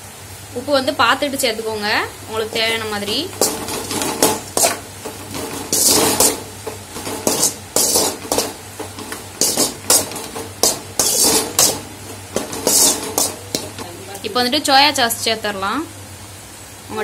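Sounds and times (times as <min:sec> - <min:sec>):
metal spatula scraping metal pan: 0:02.4 - 0:13.9.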